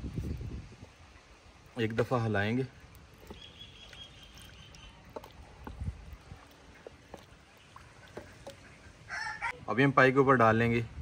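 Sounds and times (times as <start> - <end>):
broth sloshing: 0.0 - 9.1.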